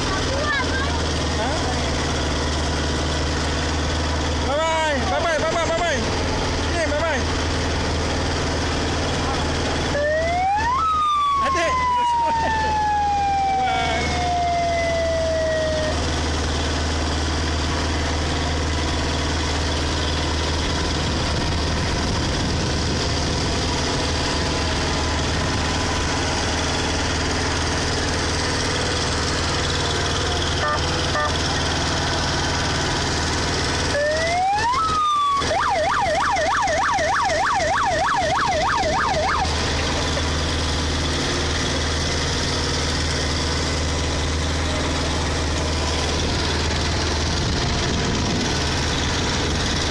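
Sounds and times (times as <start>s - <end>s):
tractor engine running: 0.0s - 49.9s
siren wailing: 9.9s - 16.1s, 33.9s - 39.6s.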